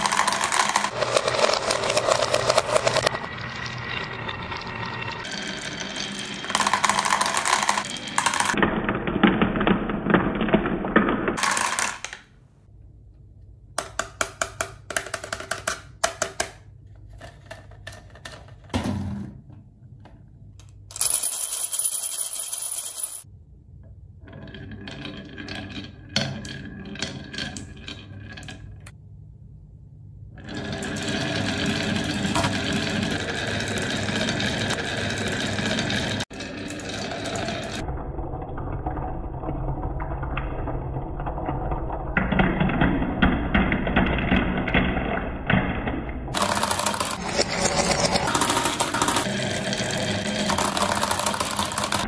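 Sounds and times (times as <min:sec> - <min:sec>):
marbles clacking into plastic truck: 0:00.0 - 0:03.2, 0:06.4 - 0:08.6, 0:11.4 - 0:12.3, 0:46.3 - 0:49.3, 0:50.4 - 0:52.0
marbles rolling on wooden track: 0:00.0 - 0:12.2, 0:20.9 - 0:23.3, 0:24.3 - 0:28.8, 0:30.4 - 0:37.9, 0:38.8 - 0:52.0
marbles rattling in drinking glass: 0:05.2 - 0:08.6, 0:20.9 - 0:23.3.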